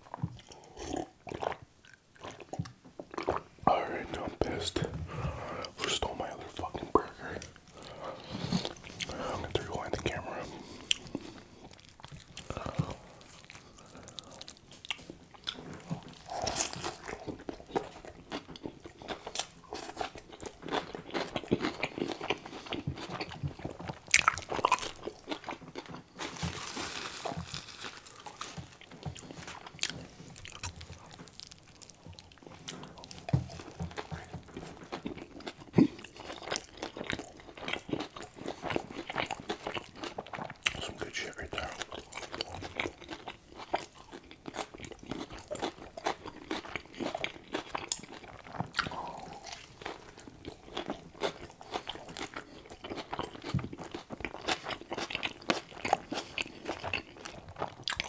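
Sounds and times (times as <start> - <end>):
chewing and biting food: 0.0 - 58.0.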